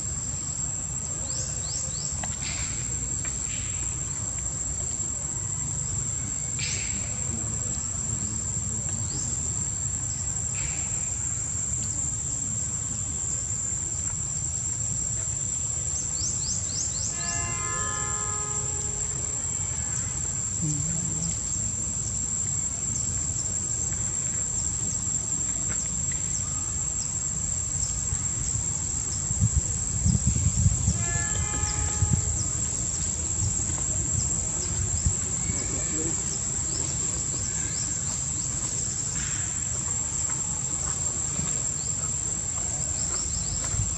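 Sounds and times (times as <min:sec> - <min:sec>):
high-pitched insect drone: 0:14.3 - 0:42.5.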